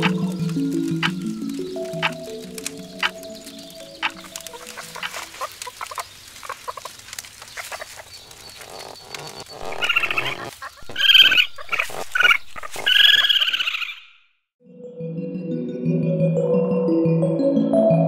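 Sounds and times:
animal chattering calls: 4.0 - 14.1.

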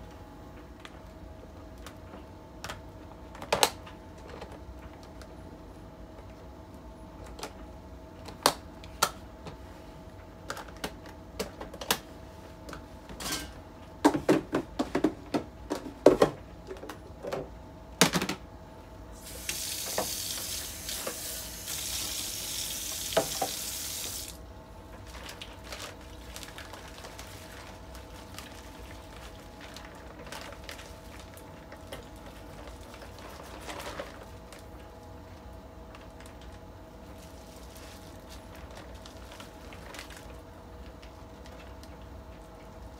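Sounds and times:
tap running: 19.4 - 21.8, 22.9 - 24.3
plastic rustling: 24.9 - 42.9.

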